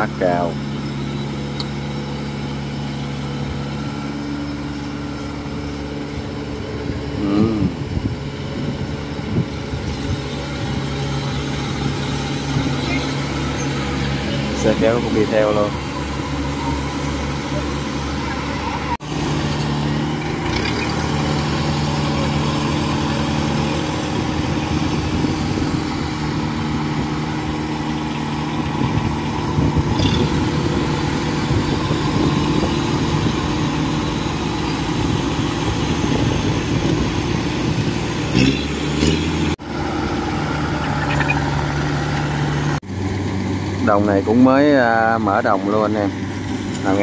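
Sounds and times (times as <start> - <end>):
combine harvester diesel engine: 0.0 - 47.0.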